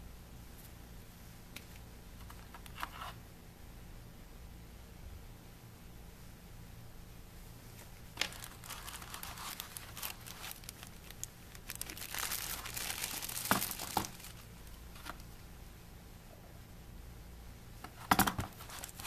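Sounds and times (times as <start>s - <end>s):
plastic bag crinkling: 8.2s - 15.2s, 18.5s - 19.0s.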